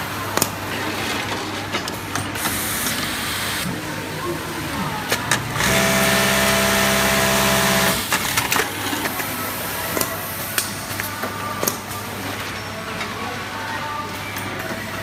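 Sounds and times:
sewing machine humming: 2.4 - 3.7, 5.3 - 8.6.

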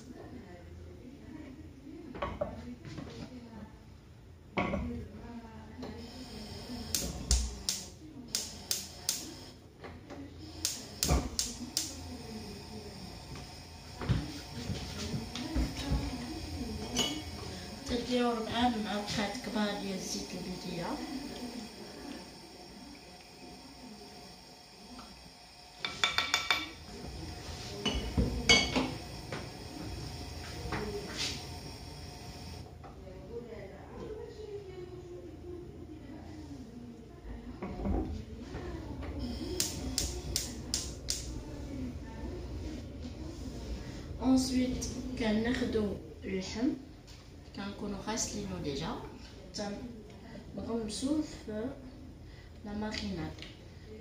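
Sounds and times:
gas igniter clicking: 6.7 - 9.4, 10.5 - 12.1, 39.3 - 41.3.

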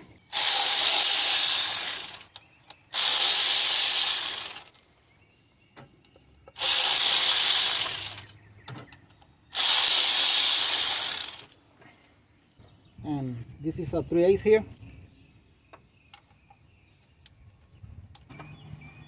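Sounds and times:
power ratchet whirring: 0.3 - 4.7, 6.6 - 8.4, 9.5 - 11.6.

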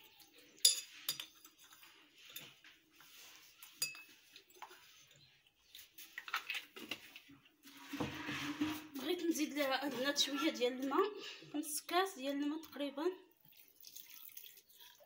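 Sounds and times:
metal utensil clinking on pot: 0.6 - 1.5, 3.8 - 4.1.

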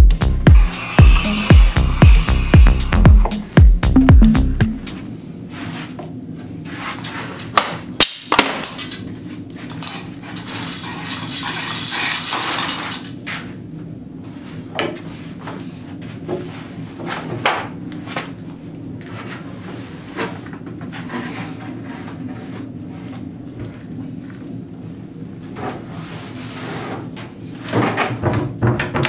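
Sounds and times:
steady low hum: 0.0 - 5.5
rustling and scraping: 5.5 - 7.5, 19.0 - 24.3, 25.5 - 28.2
wooden cabinet knocking and clattering: 27.8 - 29.0.

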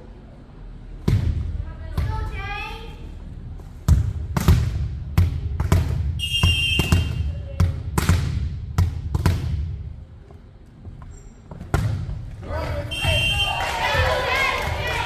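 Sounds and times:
volleyballs thudding: 1.0 - 2.4, 3.6 - 10.0, 11.5 - 15.0.

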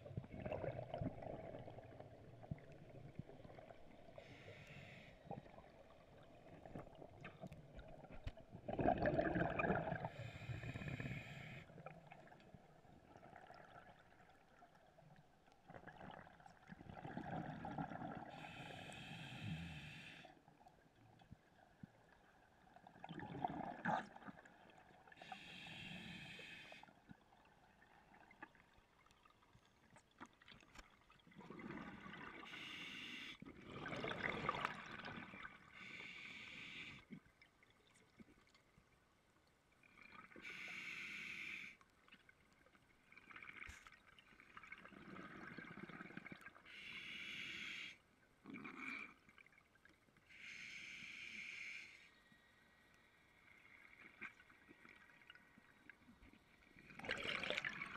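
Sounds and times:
bubbly exhaled air: 8.6 - 11.6, 56.9 - 57.9
hissing regulator inhalations: 25.2 - 26.8.

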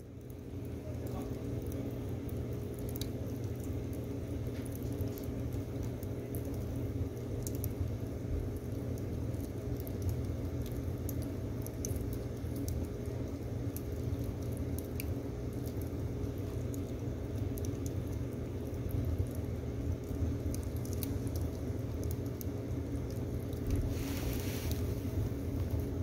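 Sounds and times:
stove fire rumble: 0.0 - 26.0
wood fire crackling and popping: 0.0 - 26.0.

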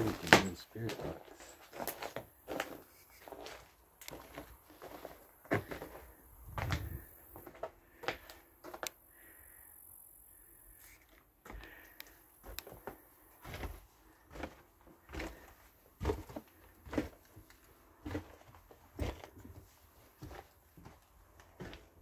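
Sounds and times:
footsteps walking slowly: 0.0 - 9.0, 10.8 - 22.0.

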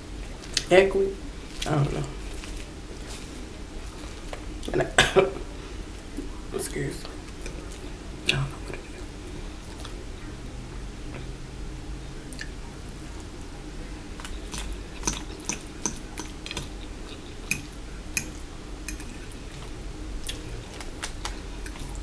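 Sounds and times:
wet chewing clicks: 14.2 - 18.3.

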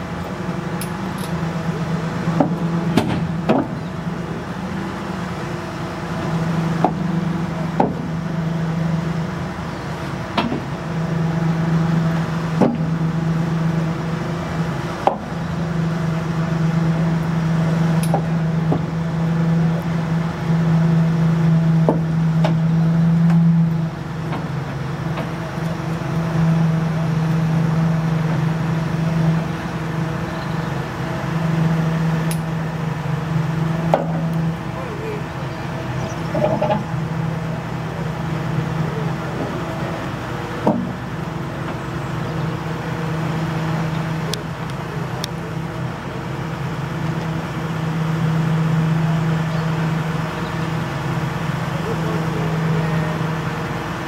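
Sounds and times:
clicks and knocks of wheels: 36.3 - 37.0.

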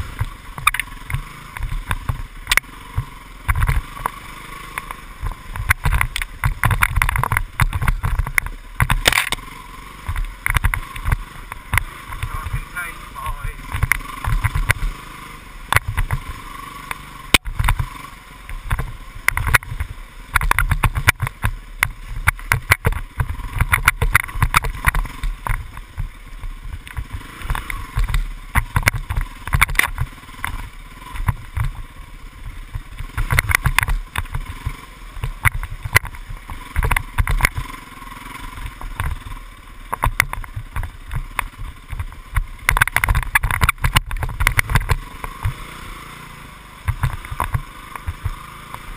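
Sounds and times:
dirt bike engine running: 0.0 - 48.9
knocks and rattles: 5.2 - 9.4, 18.6 - 26.1, 39.9 - 45.6.

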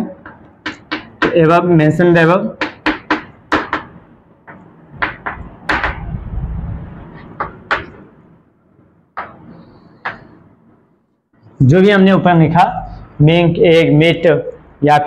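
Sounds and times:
chalk tapping and scraping on blackboard: 0.0 - 1.6, 2.6 - 6.1, 7.1 - 8.1, 9.2 - 10.4.

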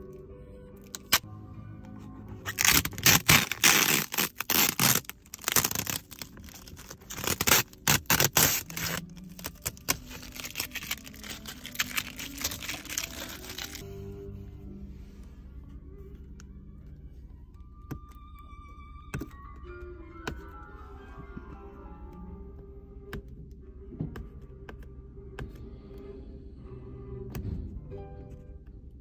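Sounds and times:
plastic film peeling and crumpling: 2.5 - 13.8.

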